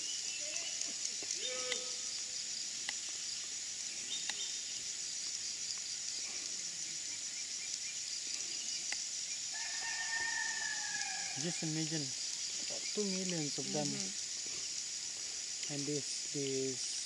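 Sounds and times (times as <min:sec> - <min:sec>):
long drawn-out call: 0:00.0 - 0:02.3
insects chorus: 0:00.0 - 0:17.0.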